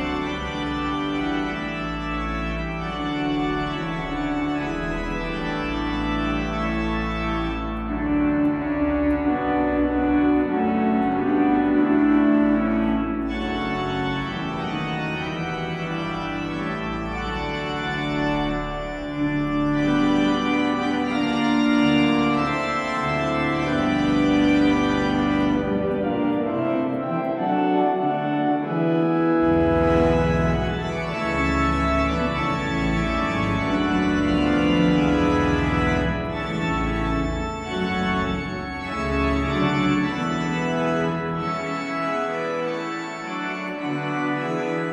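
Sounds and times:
pipe organ chords: 0.0s - 44.9s.

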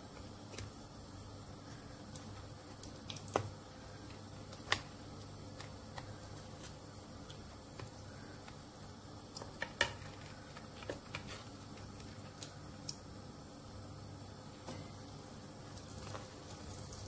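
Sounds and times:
oil pops and crackles: 2.1s - 8.6s
food deep-frying in oil: 11.7s - 17.0s.

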